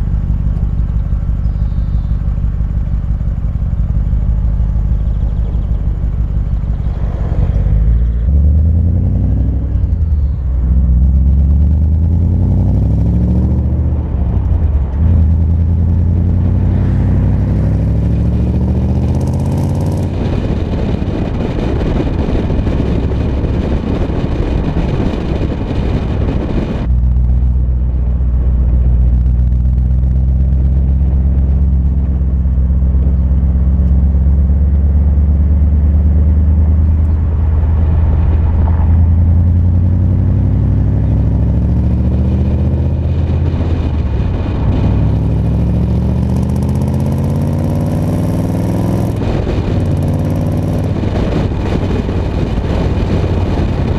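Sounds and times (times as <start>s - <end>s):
car engine accelerating: 0.0s - 53.9s
wind and road noise: 0.0s - 53.9s.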